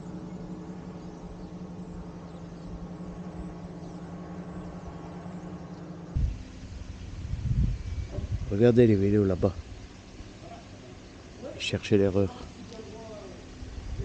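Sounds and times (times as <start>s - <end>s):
low rumble: 0.0s - 10.4s
small engine droning overhead: 0.0s - 14.0s.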